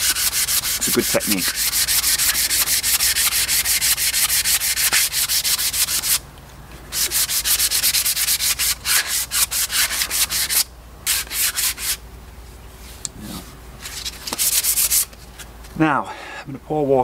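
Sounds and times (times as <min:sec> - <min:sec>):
sandpaper rubbing on wood: 0:00.0 - 0:06.2, 0:06.9 - 0:12.0, 0:13.9 - 0:15.2.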